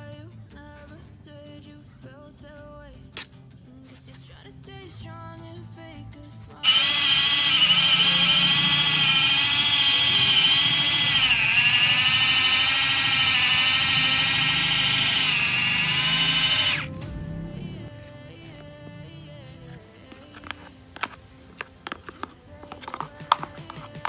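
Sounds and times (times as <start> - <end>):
electric mini chopper whining: 6.6 - 17.0.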